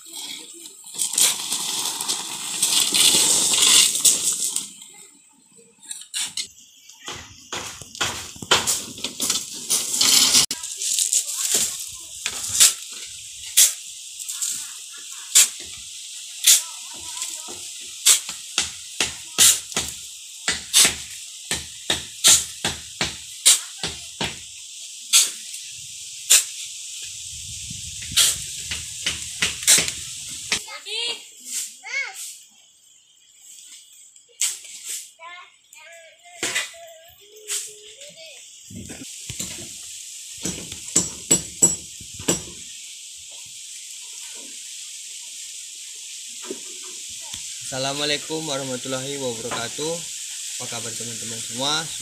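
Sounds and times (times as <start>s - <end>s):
shovels scraping gravel: 0.0s - 5.1s, 5.8s - 24.2s, 25.1s - 26.8s, 27.9s - 32.4s, 33.6s - 35.2s.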